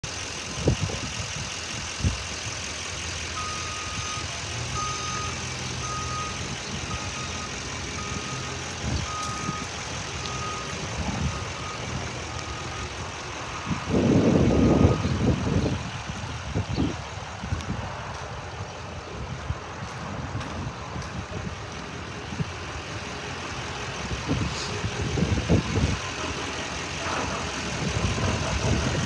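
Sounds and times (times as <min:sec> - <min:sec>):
pickup engine idling: 0:00.0 - 0:29.0
high reversing beeper: 0:03.3 - 0:15.7.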